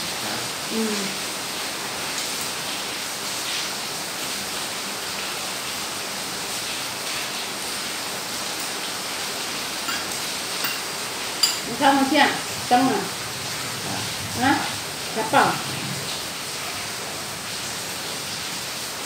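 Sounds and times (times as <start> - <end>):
person humming: 0.2 - 1.2
chopsticks clinking on bowls: 9.9 - 11.8.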